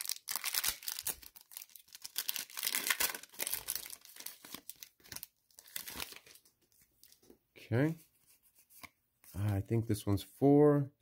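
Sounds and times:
foil wrapper crinkling and tearing: 0:00.0 - 0:06.5.

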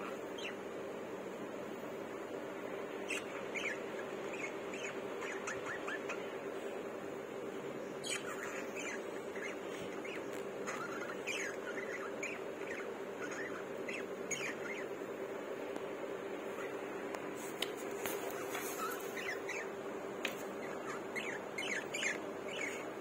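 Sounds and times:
budgerigars chirping: 0:00.0 - 0:00.6, 0:03.0 - 0:06.8, 0:07.9 - 0:15.0, 0:16.4 - 0:16.9, 0:17.6 - 0:23.0
steady low hum: 0:00.0 - 0:23.0.

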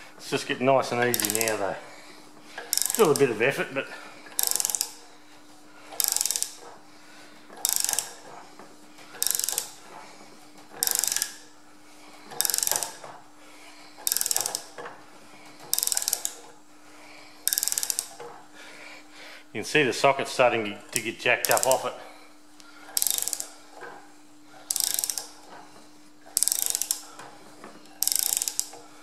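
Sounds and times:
steady low hum: 0:00.0 - 0:29.0
socket ratchet clicking: 0:01.0 - 0:01.7, 0:02.7 - 0:03.4, 0:04.4 - 0:05.0, 0:06.0 - 0:06.7, 0:07.6 - 0:08.3, 0:09.2 - 0:09.8, 0:10.8 - 0:11.4, 0:12.4 - 0:13.0, 0:14.0 - 0:14.8, 0:15.7 - 0:16.4, 0:17.4 - 0:18.3, 0:21.0 - 0:21.9, 0:23.0 - 0:23.6, 0:24.7 - 0:25.4, 0:26.3 - 0:27.2, 0:28.0 - 0:28.8.

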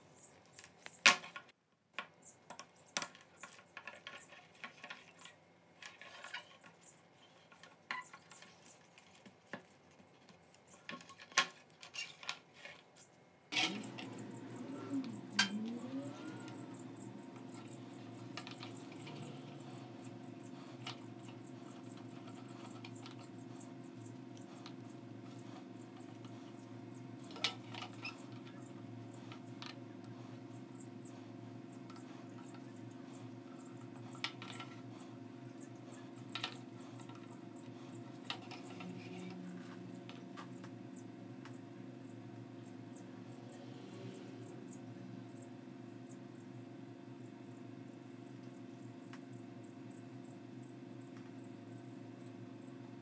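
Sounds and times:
handling clicks and scratches: 0:02.5 - 0:40.8
steady low hum: 0:12.6 - 0:53.0.

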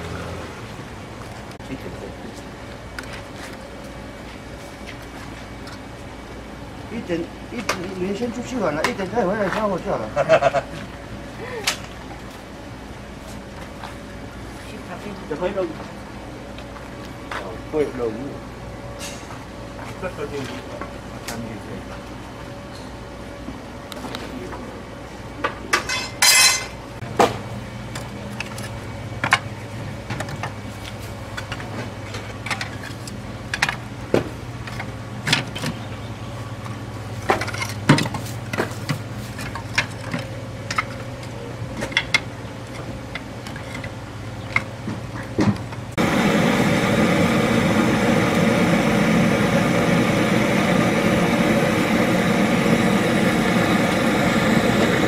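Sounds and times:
butane torch hissing: 0:46.0 - 0:55.0.

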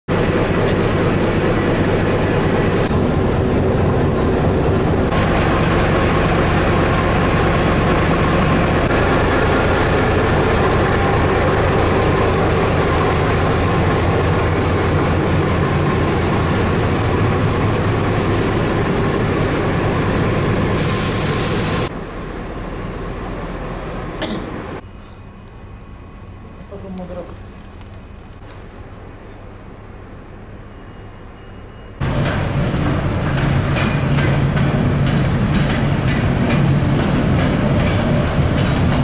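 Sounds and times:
diesel engine running: 0:00.1 - 0:20.8
train wheels clicking over rails: 0:32.0 - 0:39.0.

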